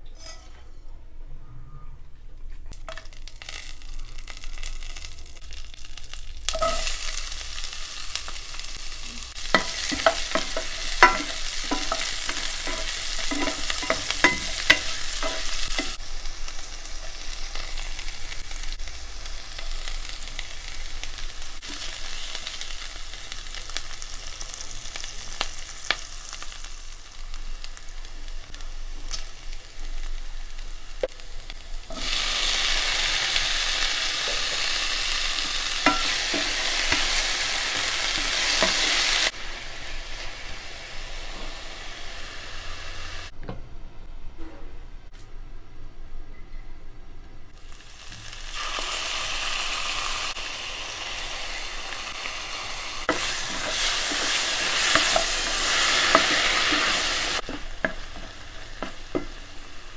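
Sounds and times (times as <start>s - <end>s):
wooden spatula scraping a pan: 0.2s - 0.8s, 9.4s - 16.0s, 53.1s - 59.3s
onions sizzling in hot oil: 2.8s - 43.3s, 47.6s - 59.9s.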